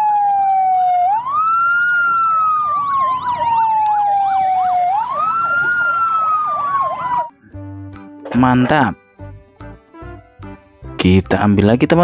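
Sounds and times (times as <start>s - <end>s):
electronic toy siren wailing: 0.0s - 7.4s
fast warbling siren yelp: 0.0s - 7.4s.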